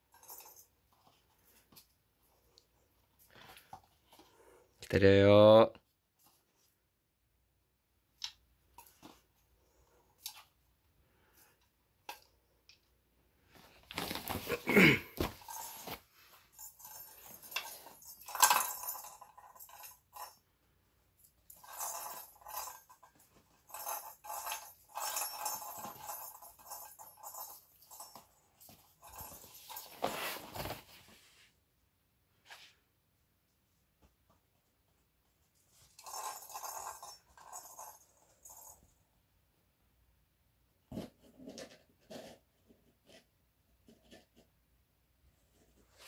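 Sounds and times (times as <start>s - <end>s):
ball rattling inside toy: 15.4s - 20.4s, 21.2s - 30.0s, 35.7s - 38.9s.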